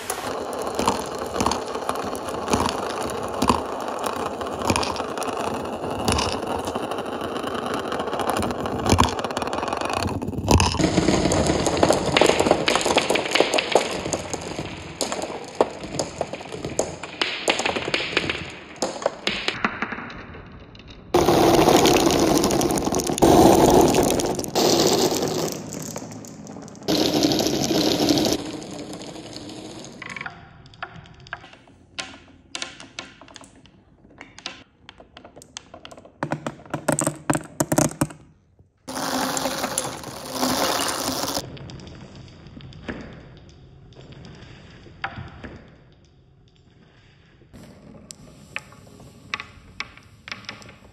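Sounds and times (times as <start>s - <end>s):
glass marbles rolling and clacking: 0.3s - 38.2s, 38.9s - 42.0s.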